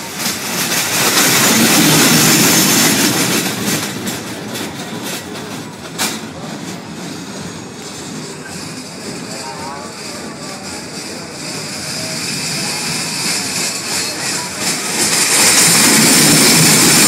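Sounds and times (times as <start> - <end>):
sharp clack: 0.0 - 6.8
roller coaster wheels rumbling: 0.0 - 17.0.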